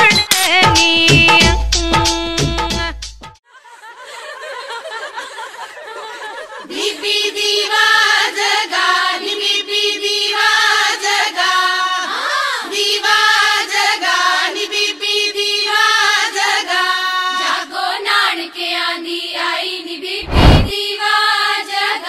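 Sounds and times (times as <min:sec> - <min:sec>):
music with singing voices: 0:00.0 - 0:03.3.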